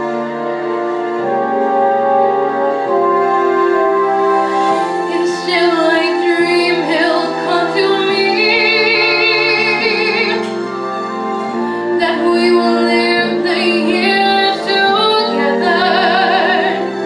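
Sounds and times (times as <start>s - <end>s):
sustained chord accompaniment: 0.0s - 17.0s
woman singing with vibrato: 5.1s - 10.7s, 11.9s - 17.0s.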